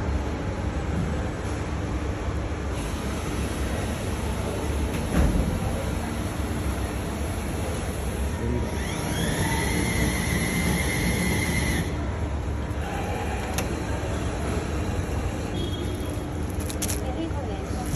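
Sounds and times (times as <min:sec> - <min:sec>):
vending machine motor whine: 0:08.4 - 0:12.1.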